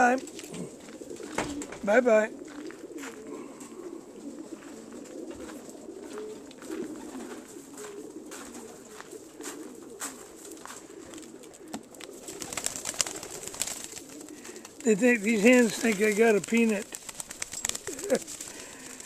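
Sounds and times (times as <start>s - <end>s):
pigeons cooing: 0.0s - 19.0s.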